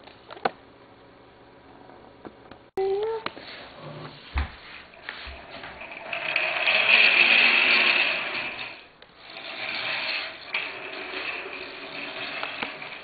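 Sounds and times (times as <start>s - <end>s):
toy car rolling on wooden floor: 5.0s - 13.0s.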